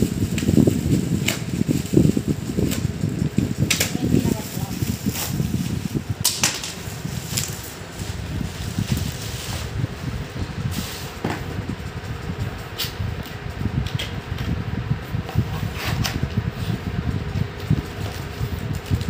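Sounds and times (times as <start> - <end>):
bubble wrap crinkling: 0.0 - 12.6
steady low rumble: 0.0 - 19.0.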